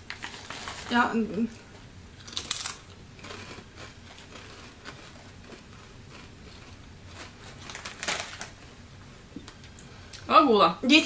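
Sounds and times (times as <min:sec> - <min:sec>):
potato chip crunching: 0:02.2 - 0:08.7.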